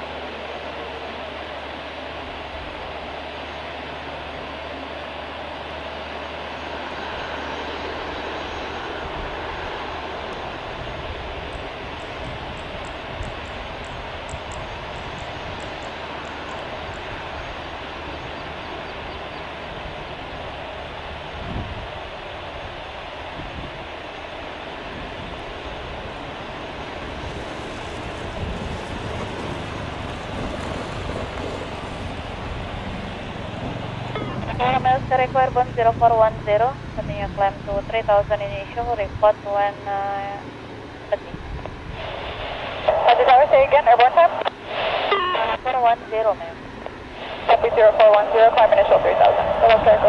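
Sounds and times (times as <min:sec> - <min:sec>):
jet engines running: 0:00.0 - 0:50.0
wind buffeting microphone: 0:06.8 - 0:45.8.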